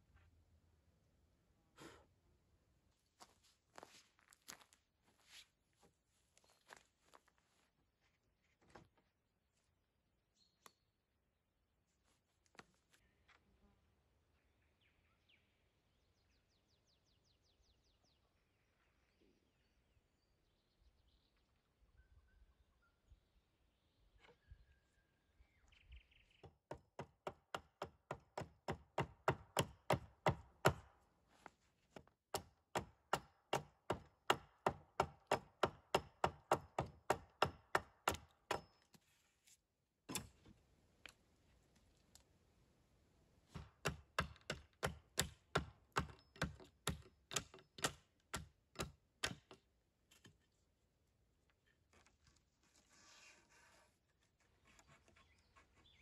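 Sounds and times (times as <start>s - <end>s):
chopping strikes on wood: 27.0s - 30.9s, 32.3s - 38.8s, 43.6s - 49.6s.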